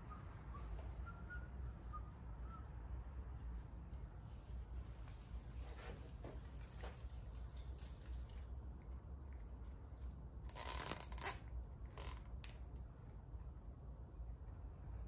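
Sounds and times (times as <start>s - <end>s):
low steady hum: 0.0s - 15.0s
scraping rustling on engine: 1.9s - 11.2s.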